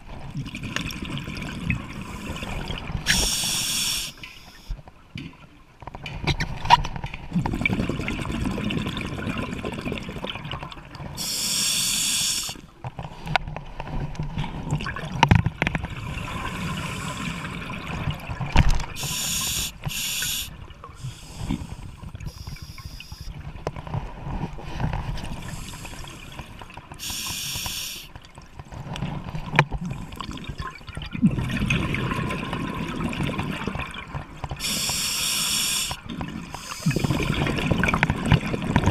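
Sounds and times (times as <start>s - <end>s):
regulator hissing inhale: 2.0s - 4.7s, 11.2s - 12.7s, 16.4s - 17.5s, 19.0s - 23.3s, 25.4s - 26.4s, 27.0s - 28.1s, 34.6s - 37.0s
low bubbling of exhaled air: 7.3s - 10.6s, 29.2s - 34.8s, 35.8s - 38.9s.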